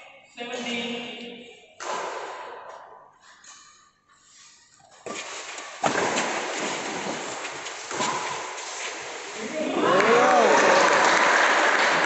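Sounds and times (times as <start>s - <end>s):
crowd shouting and cheering: 9.4s - 12.0s.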